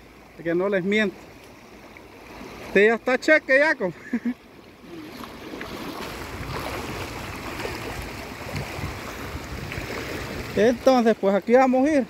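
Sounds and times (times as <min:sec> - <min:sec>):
river rushing over stones: 0:04.5 - 0:12.0.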